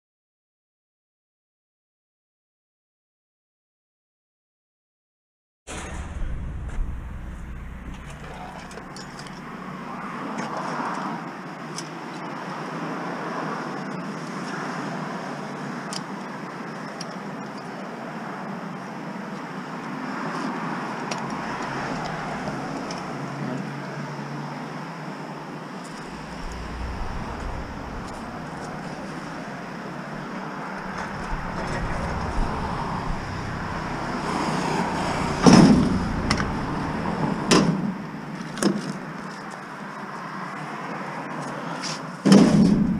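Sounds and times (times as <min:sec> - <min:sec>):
loud metallic bangs: 0:05.7 - 0:10.1, 0:26.0 - 0:38.0
street background noise: 0:05.7 - 0:42.9.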